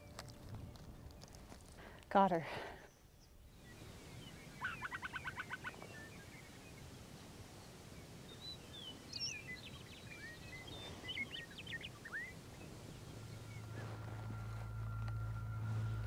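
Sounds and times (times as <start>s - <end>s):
outdoor background noise: 0.0s - 16.0s
wild birds calling: 2.8s - 6.8s, 8.3s - 16.0s.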